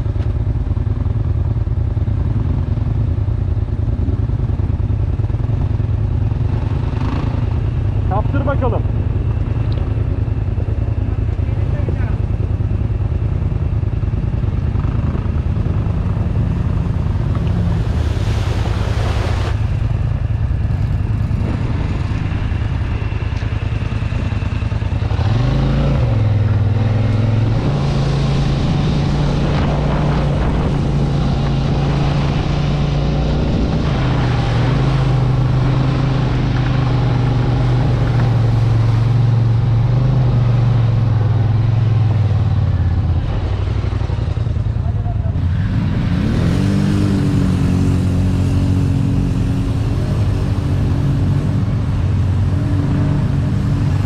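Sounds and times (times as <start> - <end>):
off-road vehicle engine running: 0.0 - 54.0
rushing noise: 16.4 - 39.2.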